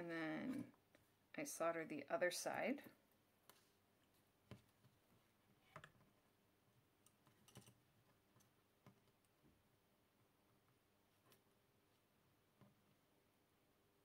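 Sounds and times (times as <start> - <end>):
faint clicks and taps of handling: 3.4 - 6.3, 7.0 - 9.6.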